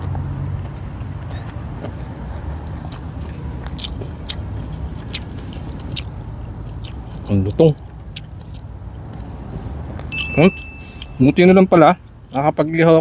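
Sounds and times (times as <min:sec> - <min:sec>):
person chewing crunchy food: 0:00.0 - 0:10.1.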